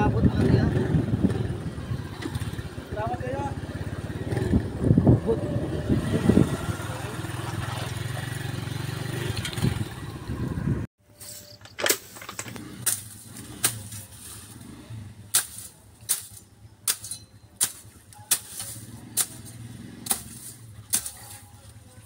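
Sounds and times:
machete chopping through grass: 0:11.9 - 0:14.6, 0:15.3 - 0:21.5.

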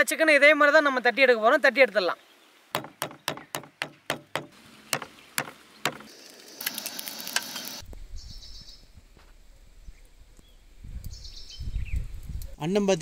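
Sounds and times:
pounding meat on wooden board: 0:02.8 - 0:06.0
wind on microphone: 0:07.8 - 0:12.6.

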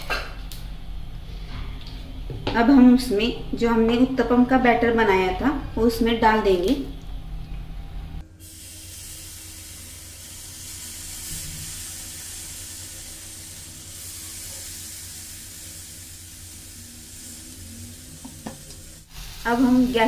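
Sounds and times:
low hum: 0:00.0 - 0:20.0
batter sizzling in oil: 0:08.3 - 0:20.0.

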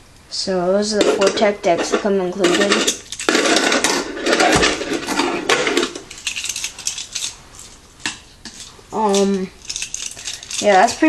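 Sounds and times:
plastic toys clicking and clattering: 0:01.0 - 0:11.0.

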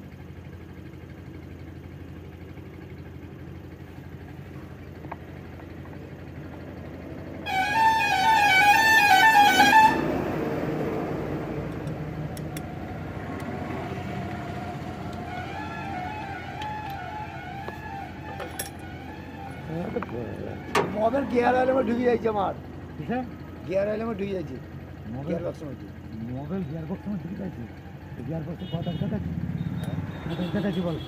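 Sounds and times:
street background noise: 0:00.0 - 0:31.0
passing vehicle rumble: 0:04.2 - 0:31.0
warbling vehicle horn: 0:07.2 - 0:10.5, 0:14.8 - 0:22.1, 0:28.5 - 0:31.0.

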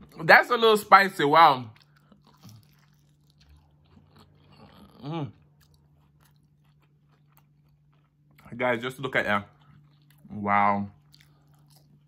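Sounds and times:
crunchy chewing of fried chicken: 0:00.0 - 0:12.0.

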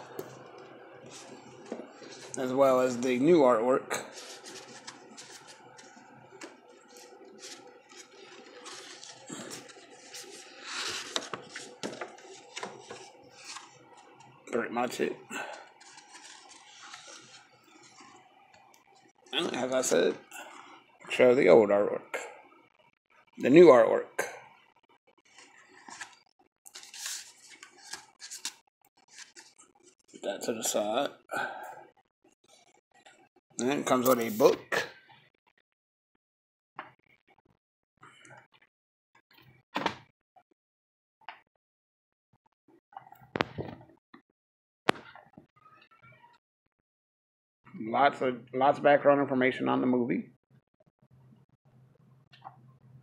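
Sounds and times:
paper poster rustling: 0:00.1 - 0:18.3, 0:25.2 - 0:31.0, 0:33.6 - 0:34.8.

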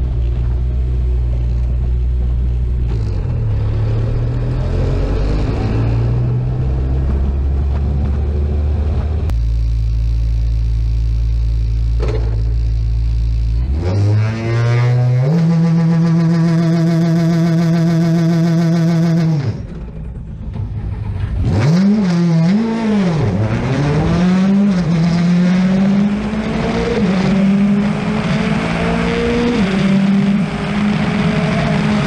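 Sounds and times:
tyre and road noise: 0:00.0 - 0:09.8
rally car engine revving: 0:00.0 - 0:10.2, 0:11.7 - 0:32.0.

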